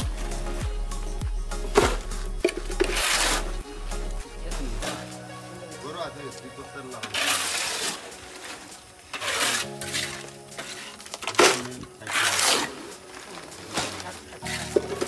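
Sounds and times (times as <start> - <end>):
harsh scraping strokes: 0.0 - 15.0.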